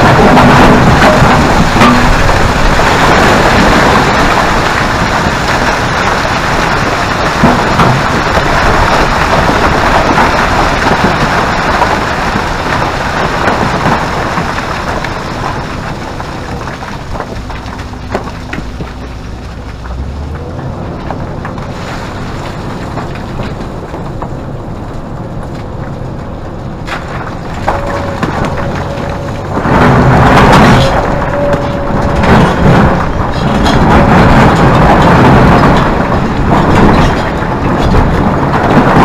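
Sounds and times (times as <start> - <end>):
rubble tumbling down rock pile: 0.0 - 24.3, 26.9 - 39.0
low engine hum: 14.4 - 39.0.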